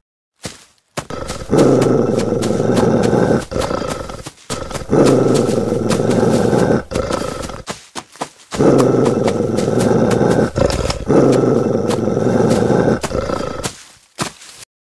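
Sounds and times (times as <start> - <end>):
dog growling: 1.1 - 7.6, 8.6 - 13.7.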